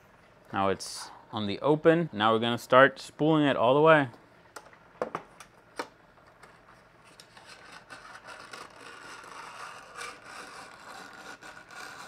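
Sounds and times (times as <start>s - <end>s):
hand crank grinding whir: 8.3s - 12.0s.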